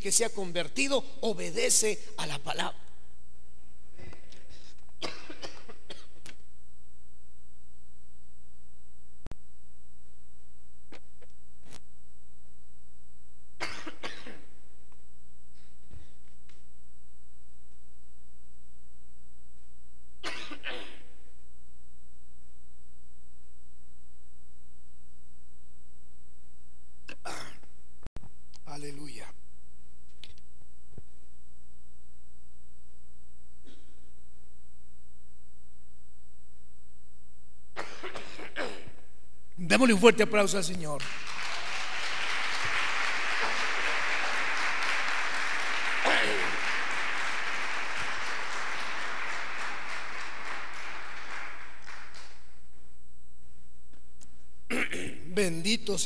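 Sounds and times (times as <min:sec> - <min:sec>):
man coughing: 0:05.0 - 0:06.2, 0:13.6 - 0:14.5, 0:27.2 - 0:27.7, 0:37.8 - 0:39.0, 0:54.7 - 0:55.3.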